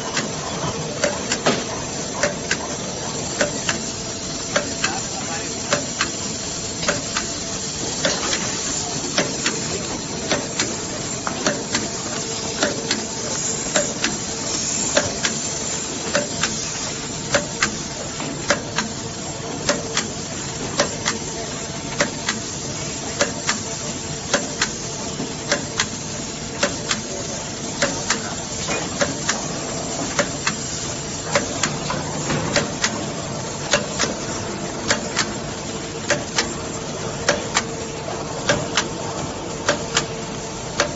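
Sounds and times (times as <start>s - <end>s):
machine hiss and hum: 0.0s - 40.9s
sharp machine clicks: 0.1s - 6.2s, 6.8s - 16.7s, 17.3s - 17.8s, 19.6s - 21.3s, 22.0s - 22.6s, 23.2s - 23.7s, 24.3s - 24.8s, 25.5s - 26.0s, 26.6s - 27.2s, 27.8s - 33.0s, 34.8s - 35.4s.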